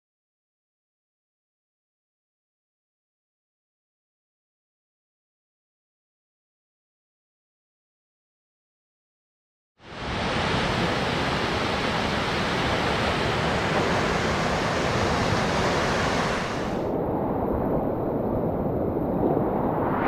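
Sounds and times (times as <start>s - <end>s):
river rapids rushing: 9.9s - 16.8s
waterfall rushing: 9.9s - 16.9s.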